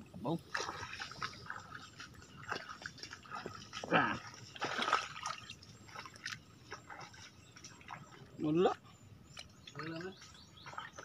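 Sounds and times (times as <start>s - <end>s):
hands splashing in muddy water: 0.5s - 8.2s
wet slaps and drips: 4.6s - 7.3s.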